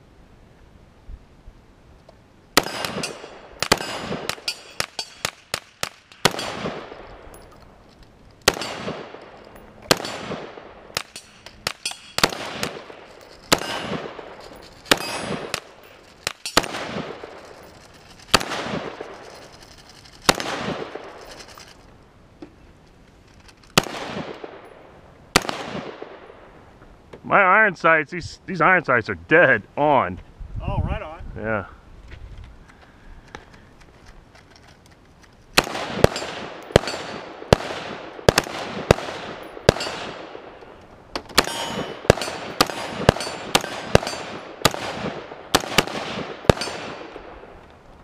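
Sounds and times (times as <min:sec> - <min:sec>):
rifle shots with echo: 0:02.6 - 0:07.3, 0:08.4 - 0:19.4, 0:20.2 - 0:21.2, 0:23.8 - 0:26.5, 0:35.6 - 0:40.7, 0:41.3 - 0:47.6
metallic clinks: 0:03.8 - 0:05.3, 0:07.1 - 0:08.1, 0:09.2 - 0:09.9, 0:11.0 - 0:12.3, 0:13.0 - 0:16.6, 0:17.2 - 0:18.3, 0:19.1 - 0:20.3, 0:21.0 - 0:21.9, 0:41.4 - 0:44.4.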